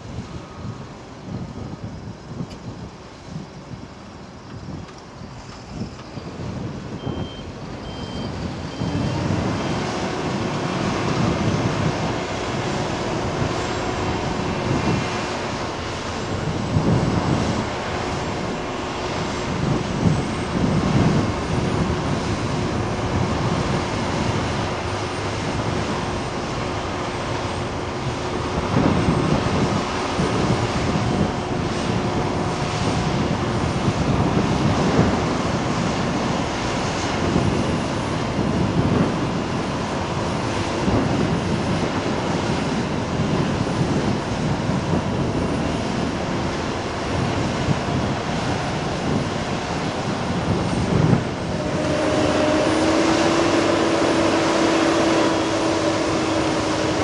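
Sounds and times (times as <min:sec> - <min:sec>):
heavy machinery diesel engines: 0:00.0 - 0:57.0
short high beeps: 0:07.0 - 0:09.0.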